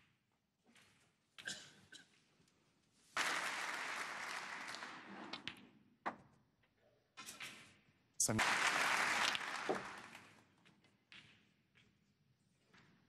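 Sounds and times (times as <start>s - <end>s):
audience applauding: 3.2s - 5.1s, 8.2s - 10.4s.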